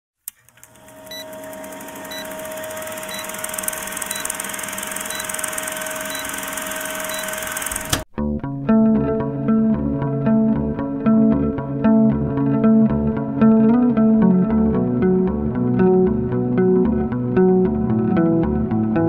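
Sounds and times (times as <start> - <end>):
film projector rattling whir: 0.4 - 8.0
guitar music: 8.2 - 19.0.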